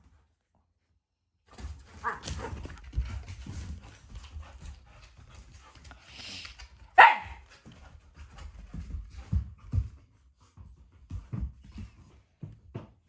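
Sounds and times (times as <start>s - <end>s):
rustling: 1.5s - 7.0s
dog barking: 2.0s - 2.6s, 7.0s - 7.4s
dog yipping: 7.0s - 7.4s.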